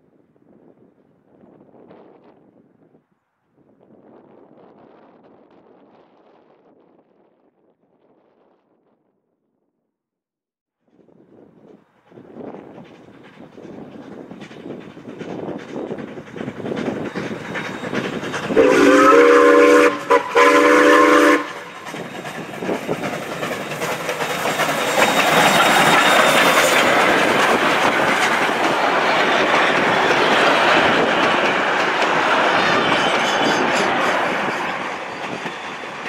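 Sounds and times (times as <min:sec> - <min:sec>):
train wheels clattering over rails: 0:11.8 - 0:36.0
steam whistle blasts: 0:18.5 - 0:22.0.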